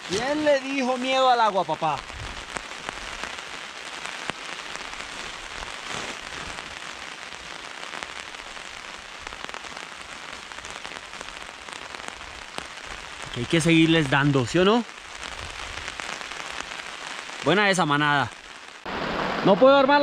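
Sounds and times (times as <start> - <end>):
heavy rain falling: 0.0 - 20.0
raindrops ticking close by: 0.0 - 20.0.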